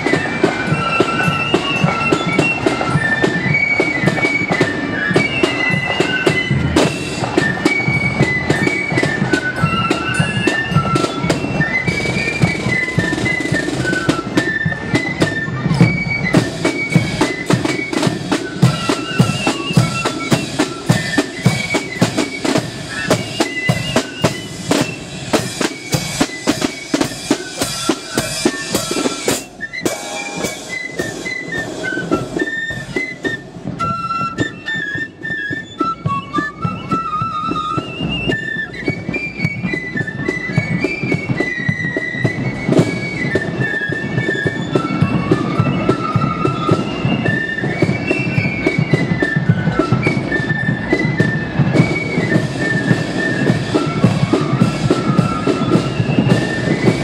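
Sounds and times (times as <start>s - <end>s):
flutes playing melody: 0.0s - 57.0s
snare drums: 0.0s - 57.0s.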